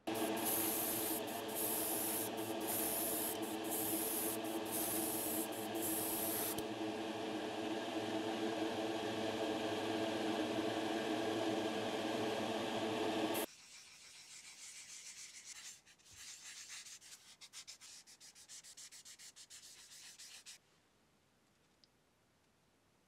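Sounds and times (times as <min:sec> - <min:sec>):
airbrush hissing: 0:00.0 - 0:06.6
exhaust fan hum: 0:00.0 - 0:13.5.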